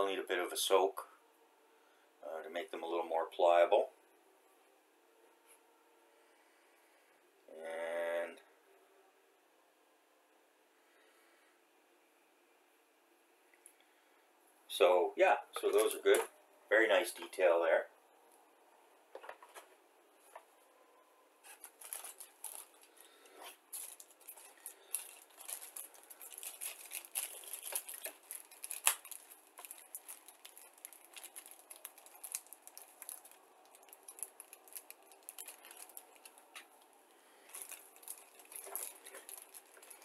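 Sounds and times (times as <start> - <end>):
plastic bags crinkling: 21.4 - 40.0.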